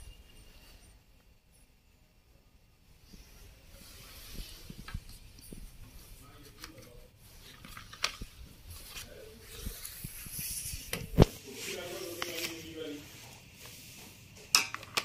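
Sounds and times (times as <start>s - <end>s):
faint hiss: 2.9s - 14.2s.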